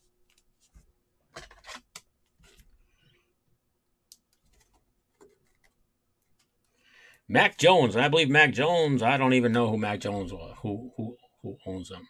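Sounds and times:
trading cards rustling and clicking: 4.1 - 6.6.

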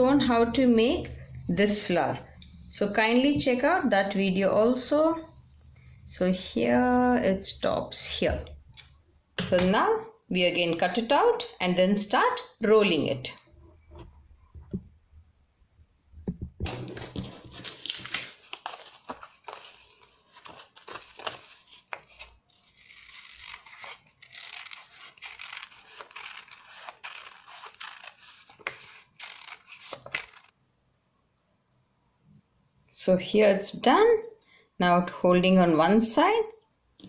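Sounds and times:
paper rustling: 16.7 - 30.5
scissors snipping paper: 17.6 - 30.5.

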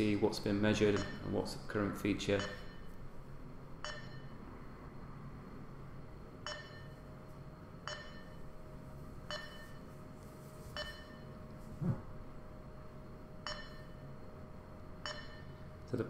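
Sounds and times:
faint low hum: 0.0 - 16.0
short electronic beeps: 0.9 - 1.3, 3.8 - 4.4, 6.4 - 7.0, 7.9 - 8.4, 9.3 - 9.9, 10.8 - 11.4, 13.5 - 14.0, 15.0 - 15.6.

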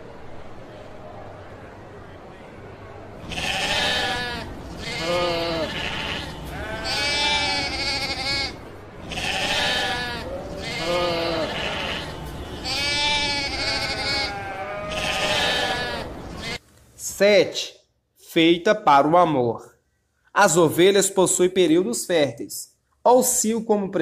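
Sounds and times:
sheep bleating: 3.2 - 16.6.

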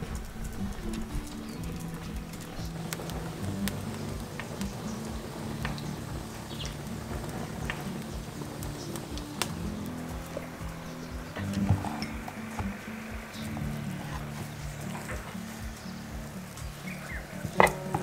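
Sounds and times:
fire crackling and popping: 0.0 - 18.0.

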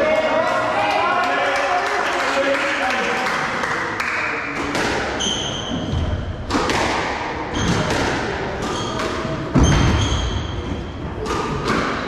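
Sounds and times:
squash ball hitting rackets and walls: 4.5 - 12.0.

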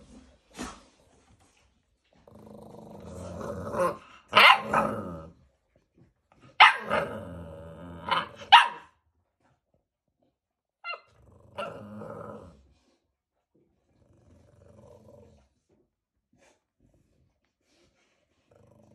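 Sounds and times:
puppies growling: 2.1 - 5.5, 6.8 - 8.5, 10.9 - 12.7, 13.9 - 15.8
puppy barks and yips: 4.4 - 4.7, 6.6 - 7.0, 8.1 - 8.9, 10.8 - 11.1.

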